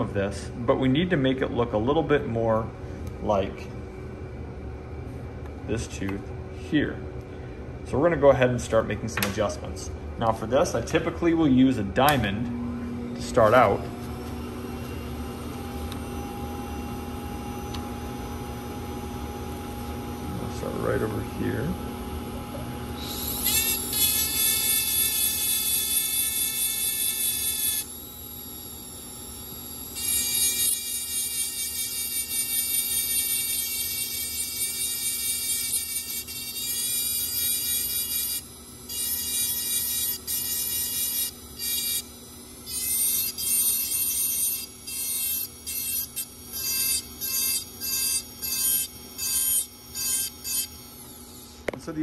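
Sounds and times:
faint motor hum: 0:00.0 - 0:52.0
dental drill grinding whine: 0:12.7 - 0:52.0.

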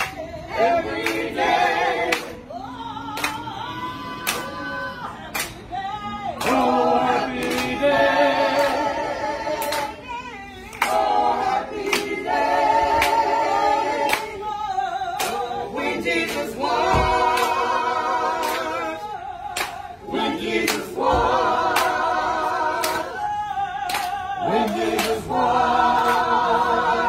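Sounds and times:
group of voices singing: 0:00.0 - 0:27.0
sharp hand claps: 0:00.9 - 0:01.3, 0:02.1 - 0:02.5, 0:03.1 - 0:03.5, 0:04.2 - 0:04.6, 0:05.2 - 0:05.7, 0:07.4 - 0:07.8, 0:09.6 - 0:10.0, 0:10.7 - 0:12.2, 0:12.9 - 0:13.4, 0:14.0 - 0:14.4, 0:15.2 - 0:15.5, 0:16.2 - 0:17.7, 0:18.4 - 0:18.8, 0:19.5 - 0:19.9, 0:20.6 - 0:22.0, 0:22.8 - 0:23.2, 0:23.9 - 0:25.3, 0:26.0 - 0:26.3.

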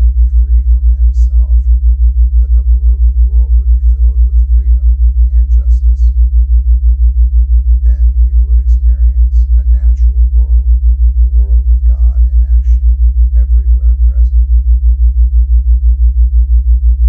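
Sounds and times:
faint voice reading: 0:00.0 - 0:01.6, 0:02.4 - 0:06.1, 0:07.8 - 0:10.6, 0:11.4 - 0:12.8, 0:13.4 - 0:14.4
deep pulsing low tone: 0:00.0 - 0:17.0.

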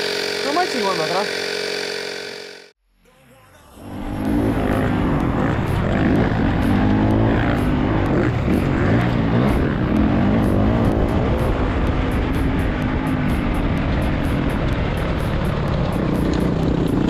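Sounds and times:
dirt bike engine revving: 0:00.0 - 0:02.7, 0:03.8 - 0:17.0.

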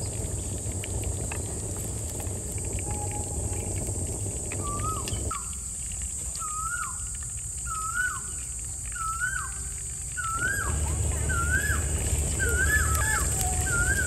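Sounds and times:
low rumble: 0:00.0 - 0:06.5, 0:10.2 - 0:14.0
bird whistling call: 0:04.6 - 0:05.6, 0:06.3 - 0:14.0.

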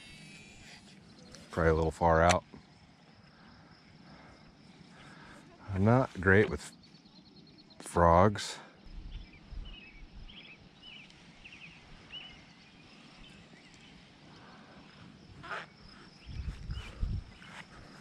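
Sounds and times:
small bird chirping: 0:08.8 - 0:14.3, 0:15.4 - 0:18.0.

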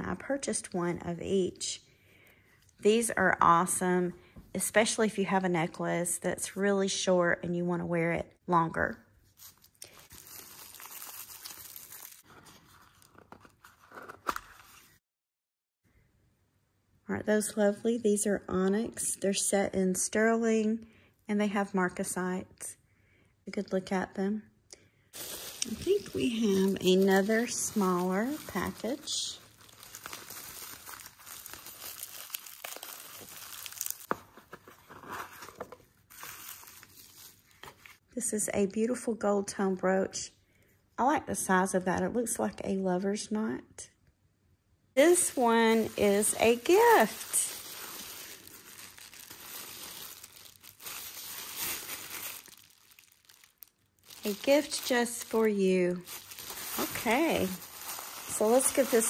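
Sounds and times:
bubble wrap crackling: 0:09.3 - 0:14.0, 0:25.2 - 0:34.5, 0:36.1 - 0:38.0, 0:45.0 - 0:59.0
packaging crinkling and rustling: 0:09.3 - 0:15.0, 0:25.2 - 0:38.0, 0:45.0 - 0:59.0.

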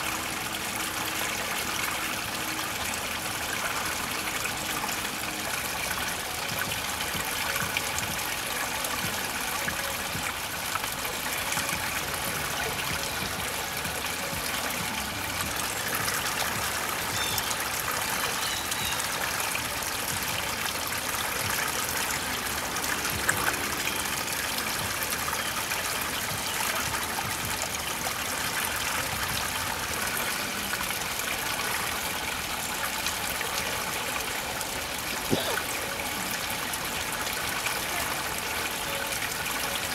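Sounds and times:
water trickling over rocks: 0:00.0 - 0:39.9.

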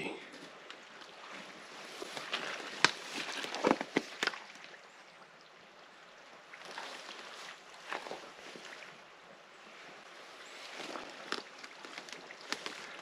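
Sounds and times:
twigs snapping: 0:02.2 - 0:04.4, 0:10.9 - 0:13.0.

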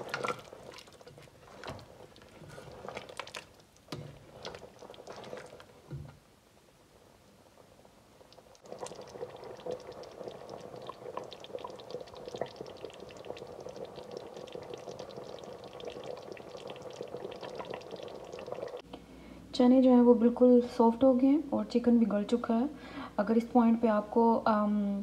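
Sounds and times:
curry bubbling in pot: 0:00.0 - 0:06.2, 0:07.5 - 0:18.8.

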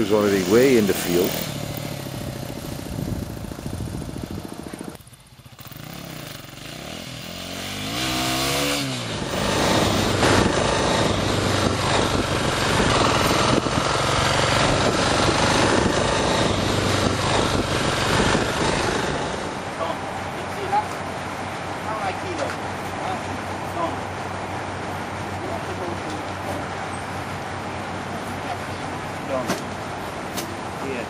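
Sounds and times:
dirt bike engine running: 0:00.0 - 0:19.6.

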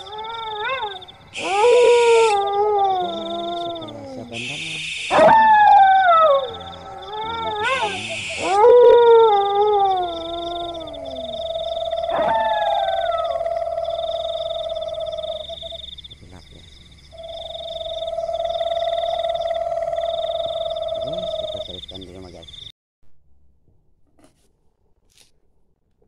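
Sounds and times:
dogs howling: 0:00.0 - 0:15.8.

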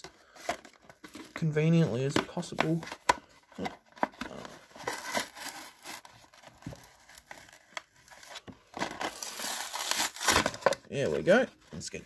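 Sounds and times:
plastic blister pack crinkling: 0:02.4 - 0:10.8.

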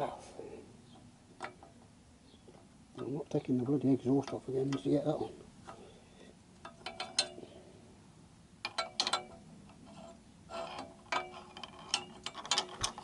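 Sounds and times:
metal part clinking on exhaust pipes: 0:06.6 - 0:07.4, 0:08.6 - 0:13.0.

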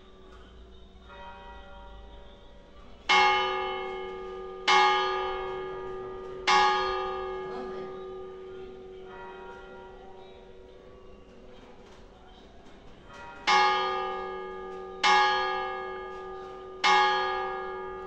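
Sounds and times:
church bell tolling: 0:00.0 - 0:18.0.

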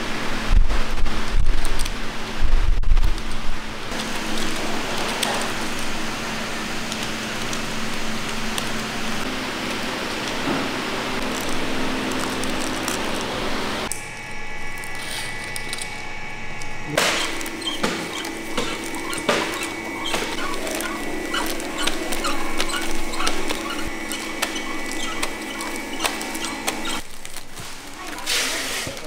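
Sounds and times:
packaging machine humming: 0:03.7 - 0:29.0
plastic wrappers rustling: 0:03.9 - 0:13.9, 0:17.0 - 0:29.0
rapid machine clicks: 0:17.0 - 0:27.4.

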